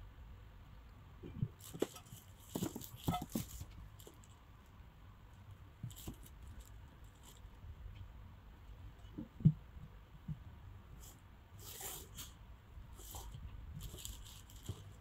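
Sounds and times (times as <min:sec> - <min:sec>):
crinkly rustle: 0:01.3 - 0:04.4, 0:05.8 - 0:07.6, 0:11.0 - 0:15.0.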